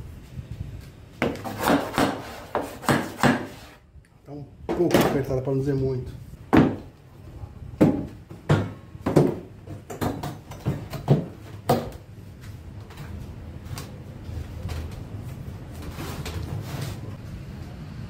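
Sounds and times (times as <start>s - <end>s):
wooden knocks and bumps: 6.5s - 6.9s, 7.8s - 12.0s.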